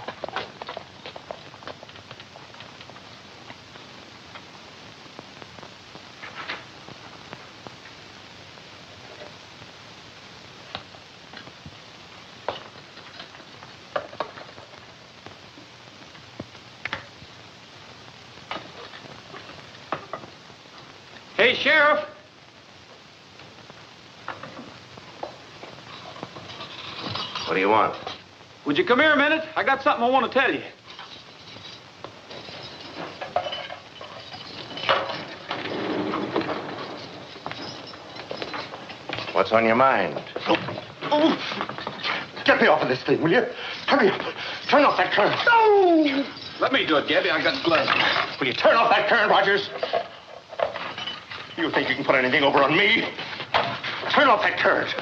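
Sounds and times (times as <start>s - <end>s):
footsteps across a room: 0.0s - 8.0s, 23.4s - 28.3s, 31.0s - 43.0s
film soundtrack hiss: 0.0s - 55.0s.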